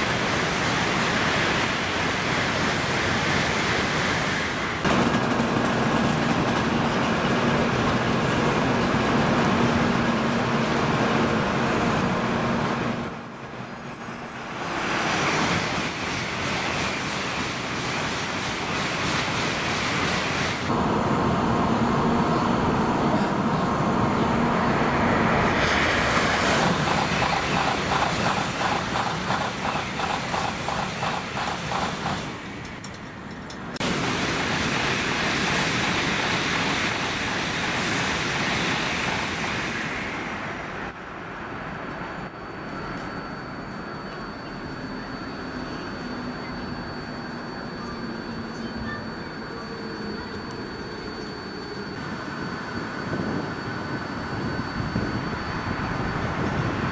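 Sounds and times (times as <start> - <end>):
train rushing past: 0.0 - 56.9
rapid rhythmic wheel clatter: 26.6 - 32.3.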